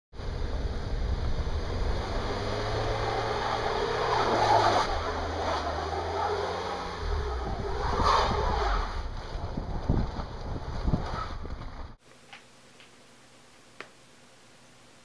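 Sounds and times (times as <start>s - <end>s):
tyre and road noise: 0.1s - 12.0s
car engine hum: 0.2s - 12.0s.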